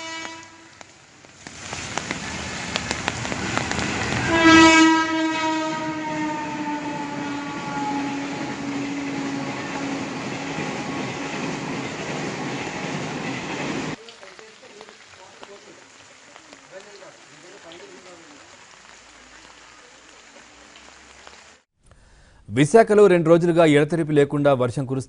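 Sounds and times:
long horn blast: 0.0s - 0.8s, 4.0s - 11.4s.

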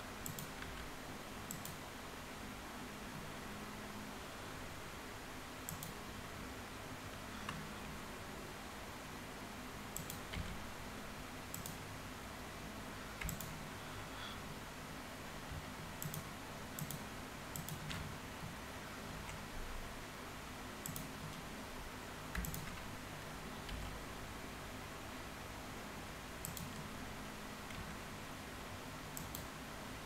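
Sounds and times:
faint steady hum and hiss: 0.0s - 30.0s
computer mouse and keyboard clicks: 0.2s - 0.9s, 1.5s - 1.8s, 5.7s - 6.0s, 7.4s - 8.0s, 10.0s - 10.6s, 11.5s - 11.9s, 13.2s - 13.6s, 15.5s - 18.6s, 20.8s - 21.5s, 22.3s - 22.9s, 23.6s - 24.0s, 26.4s - 26.9s, 29.1s - 29.5s.

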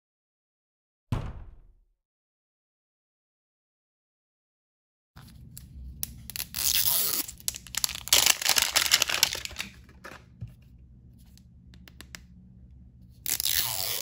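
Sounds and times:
plastic wrapping tearing and crinkling: 6.0s - 10.2s.

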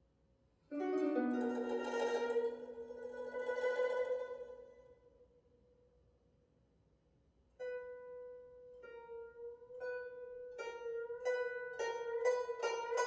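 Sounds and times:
zither notes plucked: 0.7s - 4.8s, 7.6s - 13.0s.

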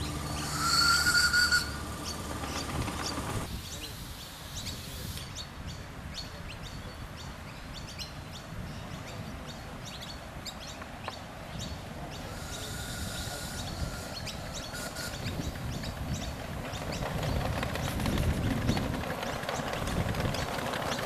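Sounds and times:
steam hissing: 12.2s - 15.6s.

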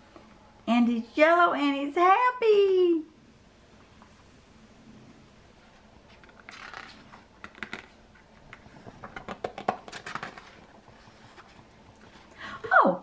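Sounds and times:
paper pages rustling and turning: 5.6s - 12.3s.

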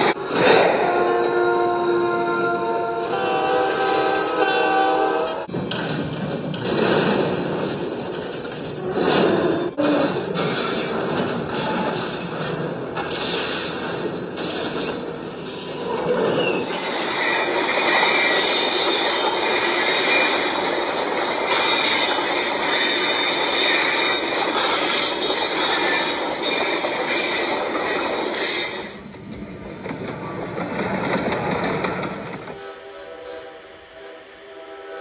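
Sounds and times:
freight train rumbling on rails: 0.0s - 35.0s
metallic wheel squeal: 15.6s - 29.0s.

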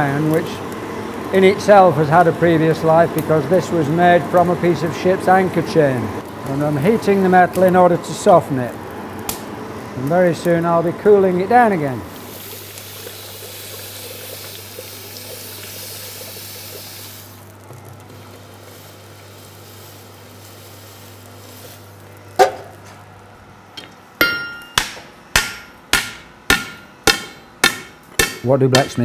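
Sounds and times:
hot iron hissing in water: 12.1s - 22.1s
hammer striking anvil: 24.2s - 29.0s.

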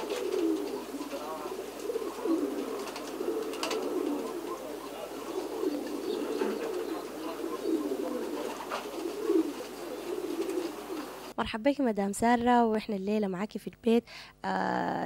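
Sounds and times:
pigeons cooing: 0.0s - 11.3s.

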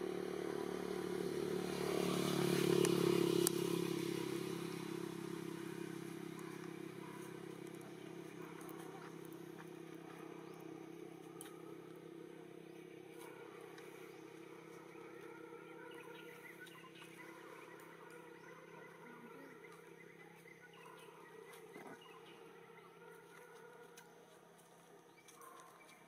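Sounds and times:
steady low hum: 3.8s - 24.6s.

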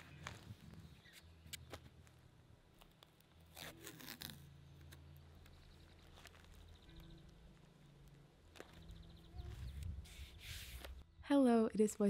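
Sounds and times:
paper scraping and rustling: 9.4s - 11.0s.

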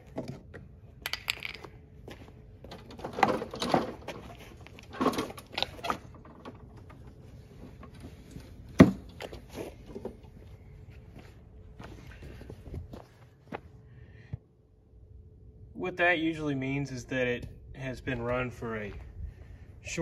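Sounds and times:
lawn mower handling knocks and scrapes: 2.7s - 10.2s.

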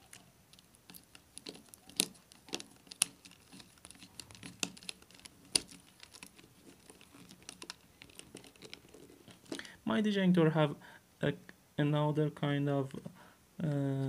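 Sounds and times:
plastic housing creaking: 0.0s - 9.7s.

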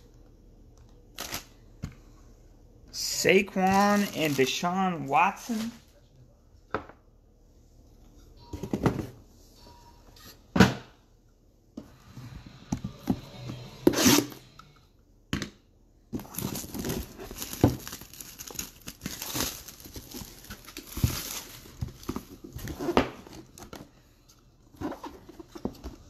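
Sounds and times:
packaging crinkling and tearing: 16.2s - 22.8s.

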